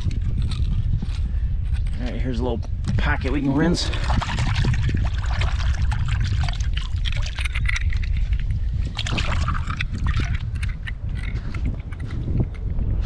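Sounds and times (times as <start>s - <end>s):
steady low rumble: 0.0s - 13.0s
shells splashing in water: 3.8s - 11.3s.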